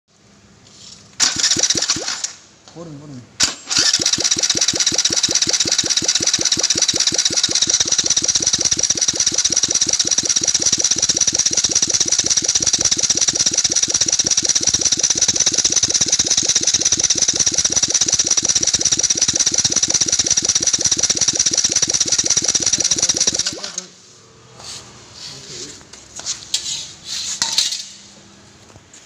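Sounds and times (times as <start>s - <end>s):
fast mechanical engine beat: 3.7s - 23.8s.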